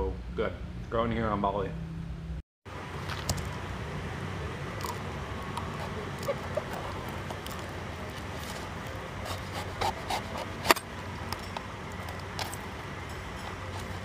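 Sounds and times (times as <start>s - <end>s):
knife chopping coconut husk: 4.8s - 10.8s.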